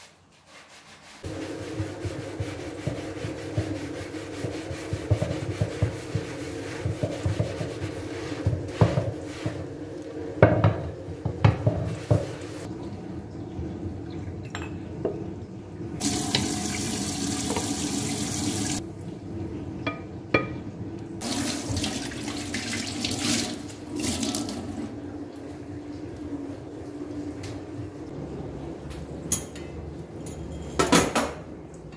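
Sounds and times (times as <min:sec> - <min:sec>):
sponge scrubbing wooden board: 0:00.0 - 0:09.8
board knocking against sink: 0:04.4 - 0:07.8, 0:10.4 - 0:12.4
tap running into sink: 0:16.0 - 0:18.8.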